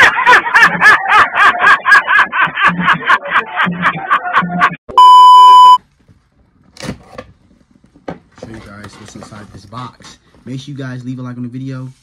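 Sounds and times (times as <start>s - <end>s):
man laughing heartily: 0.0s - 4.8s
steady test-tone beep: 4.9s - 5.8s.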